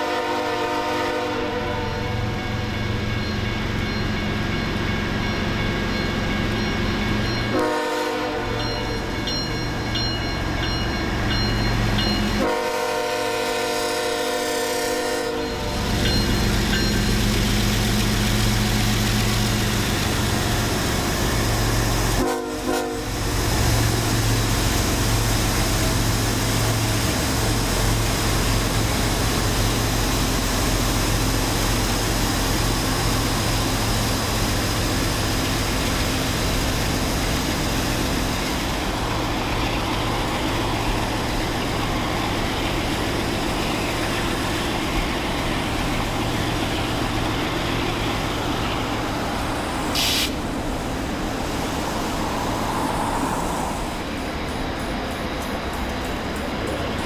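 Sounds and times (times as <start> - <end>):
train air horn blasts: 0.0 - 2.4, 7.5 - 8.8, 12.4 - 16.0, 22.1 - 23.2
diesel locomotives passing: 0.0 - 57.0.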